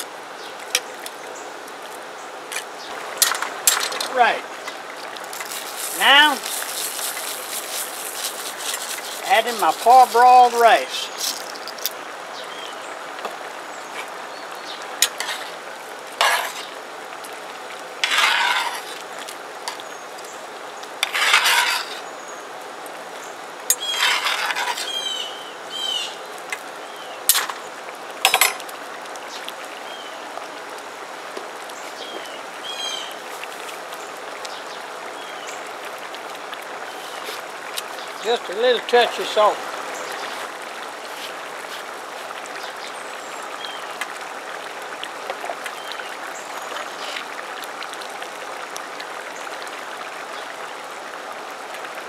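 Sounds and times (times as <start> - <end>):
steady background hiss: 0.0 - 44.8
spoon scraping a pot: 15.0 - 15.6, 16.2 - 16.7, 18.0 - 19.0, 21.0 - 22.1, 23.7 - 25.0.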